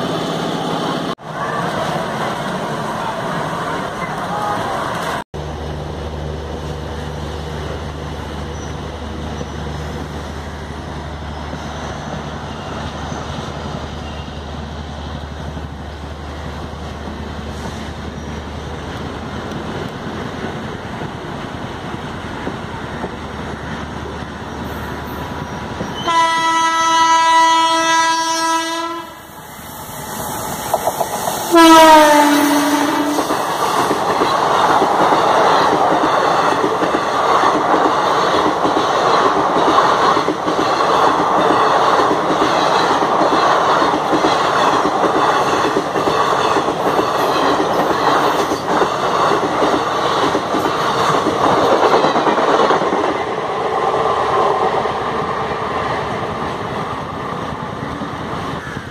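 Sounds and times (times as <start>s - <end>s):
rush of passing train: 0.0s - 58.9s
train wheels on rails: 0.0s - 58.9s
locomotive horn blast: 26.0s - 29.2s, 31.5s - 33.3s.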